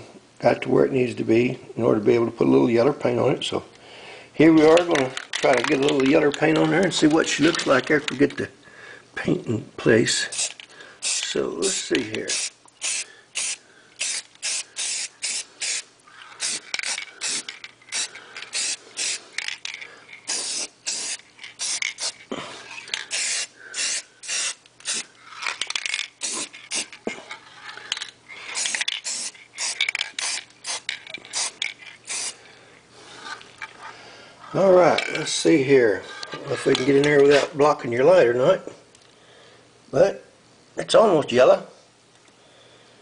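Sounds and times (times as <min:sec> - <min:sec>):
aerosol spray can hissing: 0:10.3 - 0:19.4, 0:20.2 - 0:22.3, 0:23.0 - 0:25.1, 0:26.1 - 0:27.0, 0:28.5 - 0:32.4.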